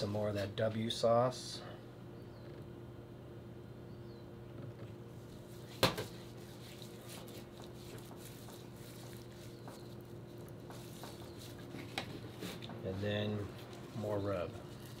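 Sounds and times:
steady low hum: 0.0 - 15.0
soft wet handling: 4.8 - 15.0.

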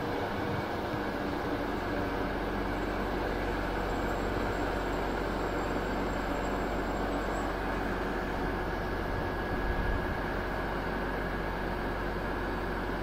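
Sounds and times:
locomotive diesel engine running: 0.0 - 13.0
faint high whine: 1.4 - 10.0.

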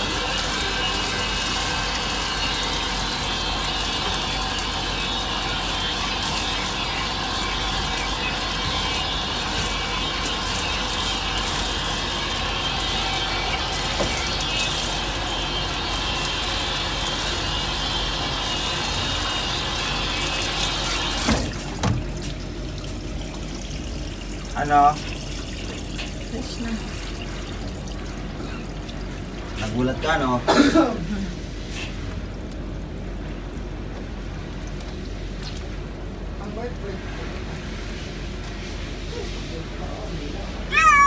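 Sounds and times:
shower sprayer water spraying: 0.0 - 30.4.

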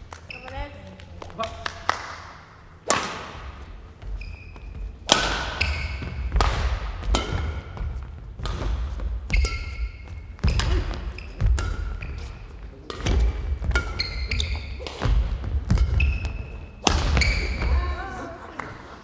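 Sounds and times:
shoes squeaking on floor: 0.2 - 1.0, 3.8 - 6.4, 8.9 - 18.0
racket striking shuttlecock: 2.8 - 3.7, 4.4 - 17.7.

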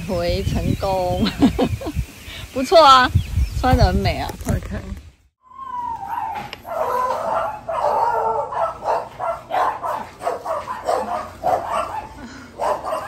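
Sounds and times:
dog yipping and whining: 5.4 - 13.0.

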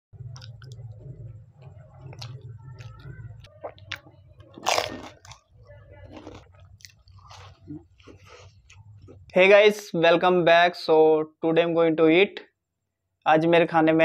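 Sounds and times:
mouth chewing with wet clicks: 0.2 - 9.3
loud crunch of shell bitten: 4.6 - 5.5.

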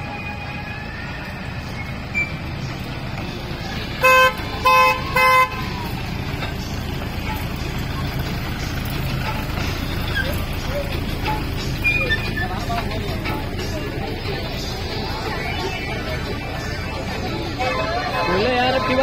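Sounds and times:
toy train rumbling: 0.0 - 19.0
toy train horn toots: 4.0 - 5.7.

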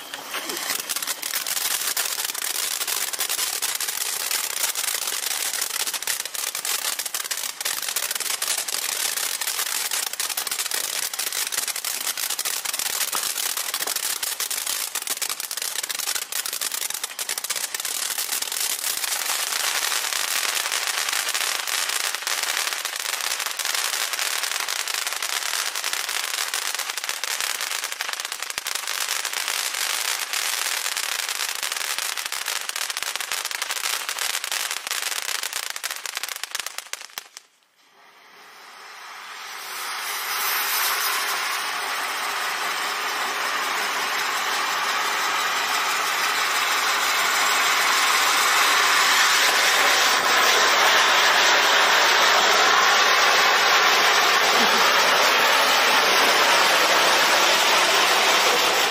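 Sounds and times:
firework fountain crackling and hissing: 0.0 - 58.9.

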